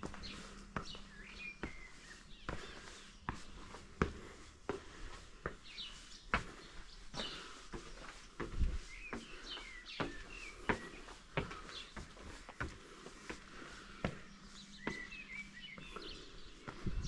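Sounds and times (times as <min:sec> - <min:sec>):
bird chirping: 0:00.0 - 0:04.4, 0:05.4 - 0:17.0
footsteps walking: 0:00.0 - 0:17.0.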